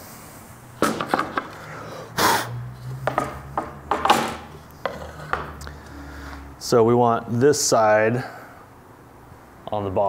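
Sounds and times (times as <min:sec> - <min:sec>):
board set down on workbench: 0:00.8 - 0:01.5
tools knocking and clinking: 0:00.8 - 0:01.6, 0:03.0 - 0:05.6
board scraping: 0:03.0 - 0:05.6.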